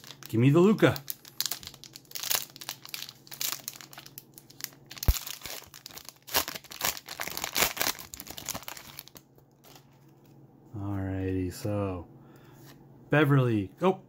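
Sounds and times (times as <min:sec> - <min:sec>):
wrapper crinkling and tearing: 0:00.0 - 0:10.2.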